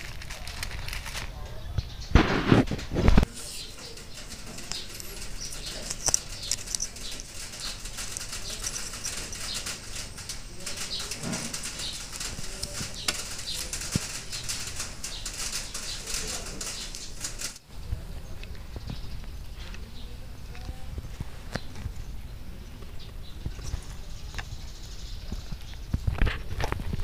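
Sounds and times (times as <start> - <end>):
hands handling small objects on cloth: 3.1 - 14.8.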